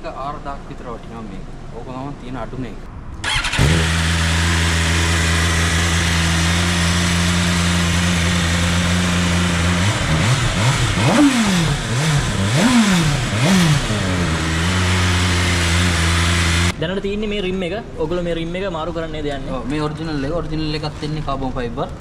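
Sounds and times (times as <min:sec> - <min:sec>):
motorcycle engine revving: 0:03.2 - 0:16.8
motorcycle engine idling: 0:03.3 - 0:16.7.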